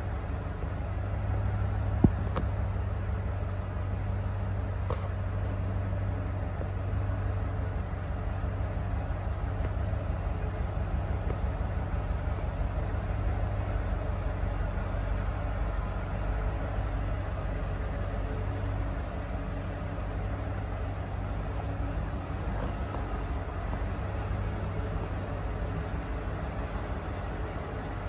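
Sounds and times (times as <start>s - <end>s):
pickup truck engine idling: 0.0s - 28.0s.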